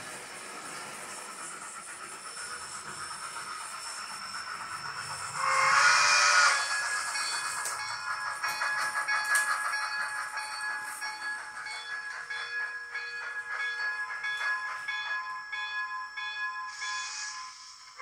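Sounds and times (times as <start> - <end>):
steam hiss: 0.0 - 14.8, 16.6 - 18.0
steam whistle blast: 5.4 - 6.7.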